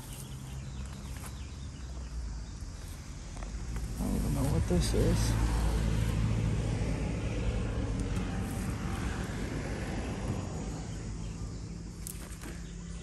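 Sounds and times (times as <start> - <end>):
distant engine humming: 3.2 - 13.0.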